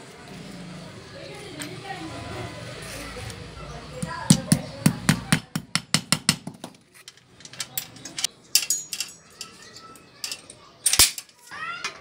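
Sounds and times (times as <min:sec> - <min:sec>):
chain clinking and rattling: 0:07.0 - 0:11.6.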